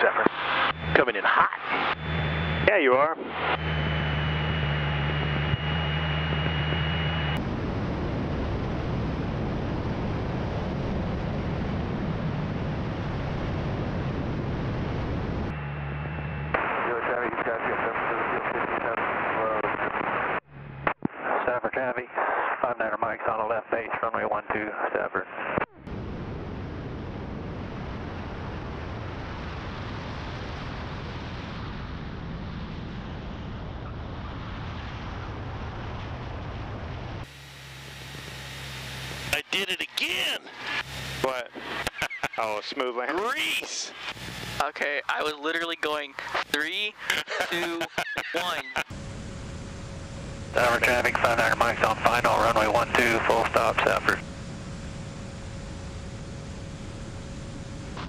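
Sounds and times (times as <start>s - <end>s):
cabin engine hum: 0.0s - 17.2s, 25.9s - 58.0s
propeller airplane engine: 0.0s - 17.2s, 25.9s - 58.0s
wind rushing over microphone: 7.4s - 15.6s.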